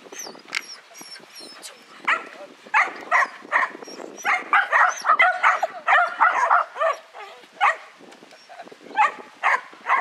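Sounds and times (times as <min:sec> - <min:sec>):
dog barking rapidly: 0:02.1 - 0:07.9, 0:09.0 - 0:10.0.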